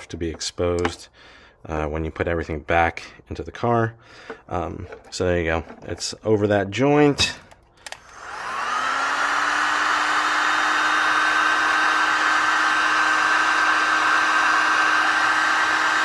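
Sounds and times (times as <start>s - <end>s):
heat gun blowing air: 7.8s - 16.0s.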